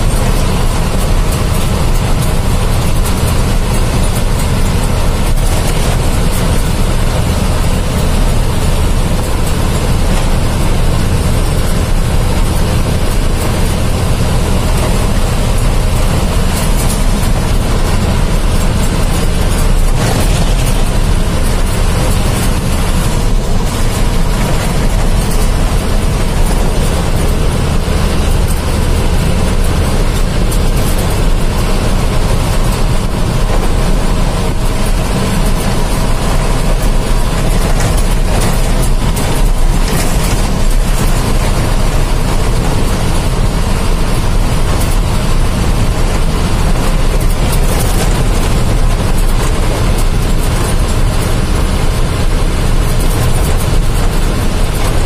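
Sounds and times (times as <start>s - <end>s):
vehicle engine hum and road noise: 0.0s - 55.0s.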